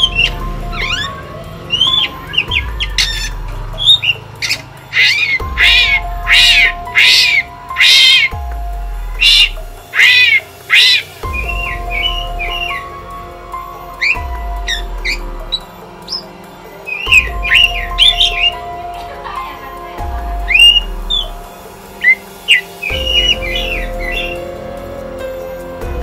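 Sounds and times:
bird chirps and whistles: 0.0s - 8.4s, 9.2s - 12.9s, 16.9s - 18.6s, 20.5s - 21.4s, 22.0s - 24.5s
harsh bird calls: 0.0s - 25.2s.

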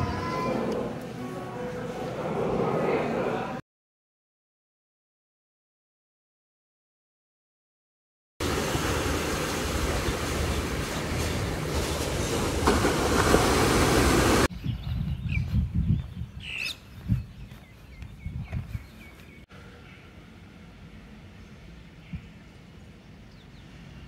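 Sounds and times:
small birds chirping: 14.6s - 20.1s.

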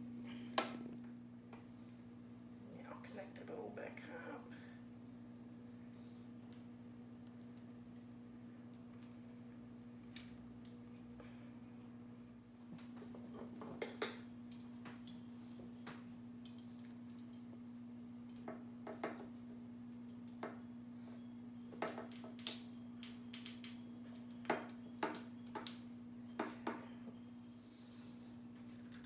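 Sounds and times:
low hum: 14.1s - 29.0s.

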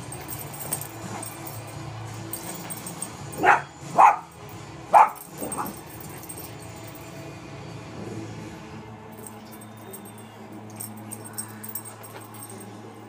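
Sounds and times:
small dog barking: 3.4s - 4.3s, 4.9s - 5.8s.

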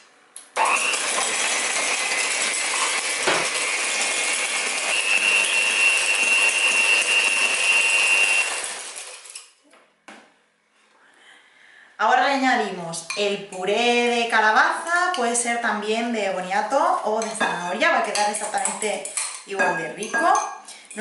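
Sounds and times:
electric hand mixer whining: 0.6s - 9.4s.

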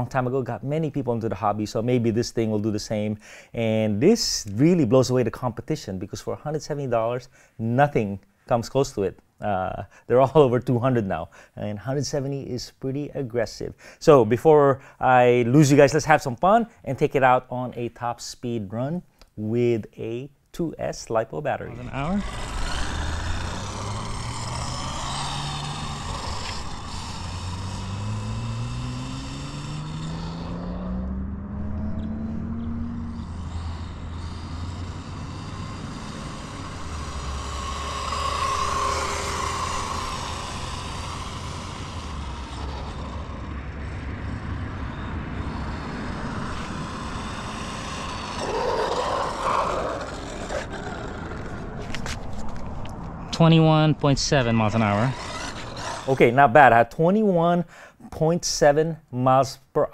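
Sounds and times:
rc truck electric motor whine: 21.8s - 53.0s, 54.4s - 56.4s.

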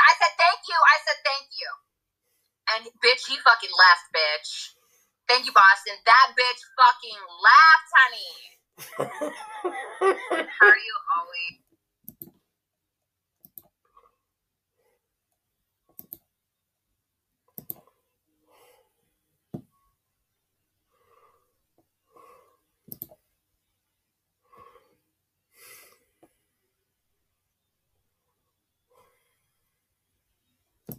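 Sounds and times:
computer clicks: 12.1s - 12.4s, 13.4s - 13.8s, 15.9s - 16.3s, 17.6s - 17.8s, 22.9s - 23.2s.

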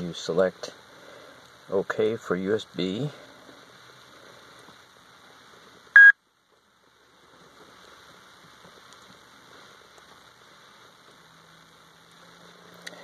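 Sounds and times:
faint steady hiss: 0.0s - 13.0s
short electronic beep: 6.0s - 6.2s.

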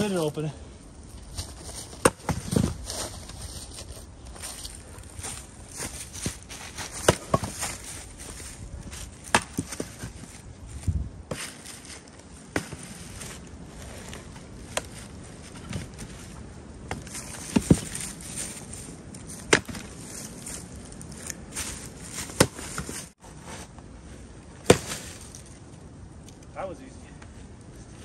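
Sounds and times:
axe splitting firewood: 1.5s - 3.2s, 5.8s - 8.0s, 9.0s - 10.2s, 11.3s - 13.3s, 16.8s - 18.7s, 19.3s - 20.0s, 21.3s - 23.6s, 24.6s - 25.5s.

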